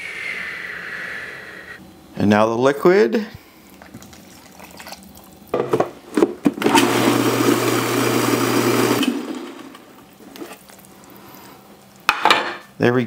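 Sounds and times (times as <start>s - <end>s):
food processor blending: 6.5s - 10.0s.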